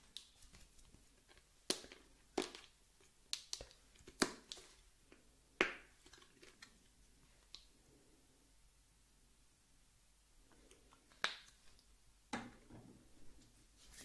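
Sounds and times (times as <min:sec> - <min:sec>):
sharp clicks and crackly snaps: 0:03.3 - 0:04.6.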